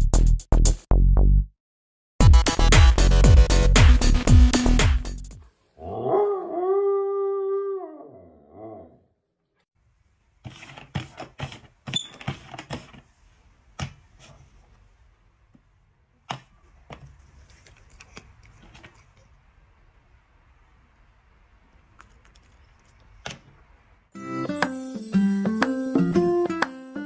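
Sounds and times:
dog howling: 5.8 - 9.0.

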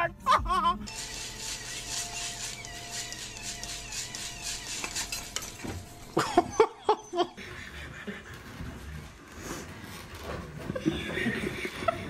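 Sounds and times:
faint motor hum: 0.0 - 7.4
bird feeder rattling whir: 0.9 - 6.1.

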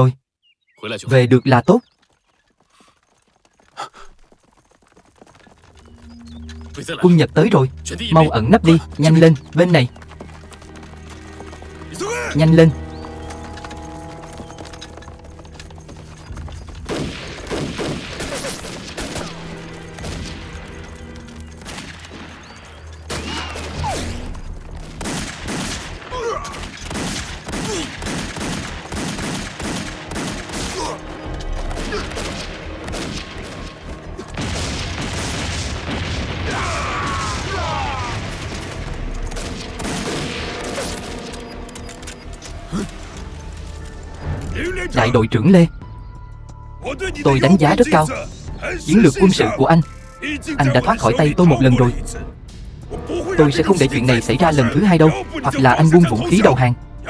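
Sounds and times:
background music: 5.7 - 57.0
rapid gunshots: 16.8 - 20.8, 21.6 - 41.3
explosion booms: 34.3 - 38.9.

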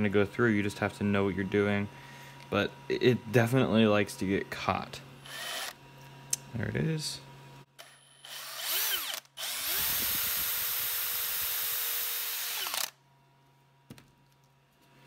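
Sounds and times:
cordless drill drilling plastic: 5.3 - 5.8, 7.8 - 13.0.

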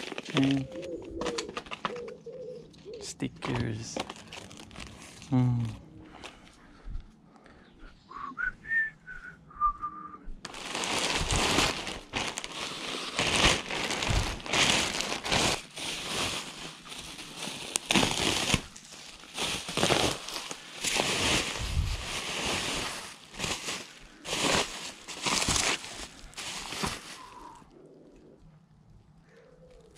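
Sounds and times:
bubble wrap crinkling and rustling: 0.0 - 2.3, 3.4 - 5.6, 10.4 - 27.8.

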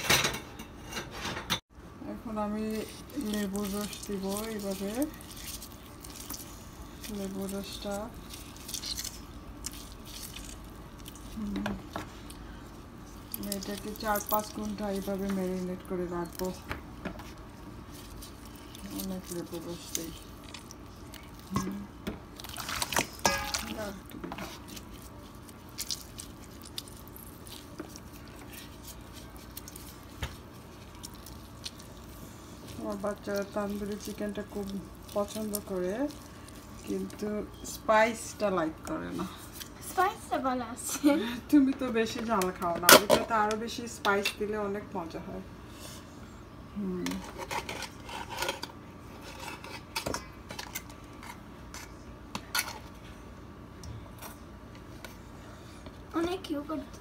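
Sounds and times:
wet squelching of lime squeezed: 3.2 - 11.5, 24.6 - 37.3
utensils clinking on metal bowl: 22.5 - 24.6.

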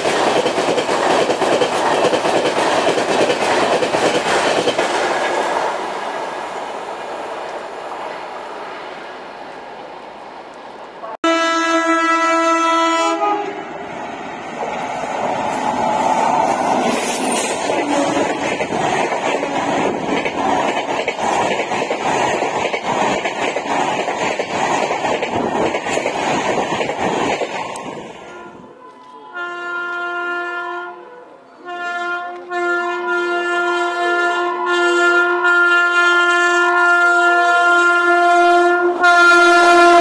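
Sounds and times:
train coaches rushing past: 0.0 - 11.2, 13.1 - 30.2
locomotive air horn blasts: 11.0 - 13.7, 17.8 - 18.4, 28.2 - 40.0.

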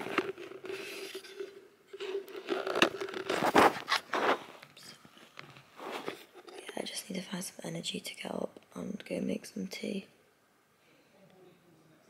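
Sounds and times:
rustling handling noise: 0.0 - 6.9
faint steady hum: 0.0 - 12.0.

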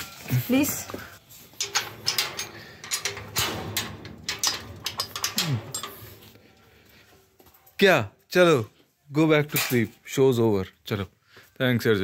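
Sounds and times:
metal gate rattling and clanking: 1.6 - 6.4.

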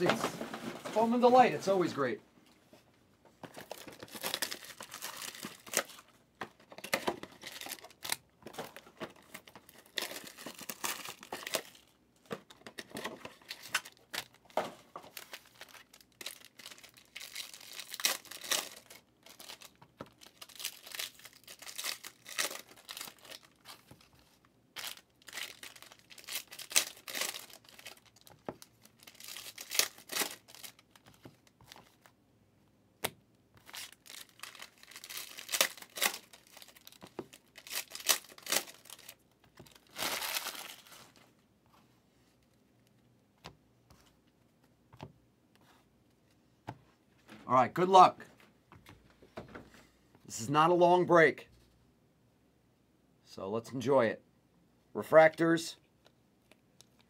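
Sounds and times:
foil wrappers tearing and crinkling: 3.6 - 6.1, 6.8 - 8.2, 9.4 - 11.9, 15.1 - 24.0, 24.8 - 31.0, 33.6 - 41.2.

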